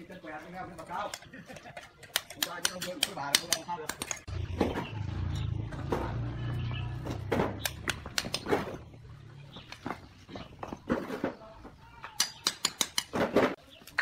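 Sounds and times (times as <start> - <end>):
trowel tapping and scraping bricks: 0.7 - 4.3, 7.6 - 8.9, 12.0 - 14.0.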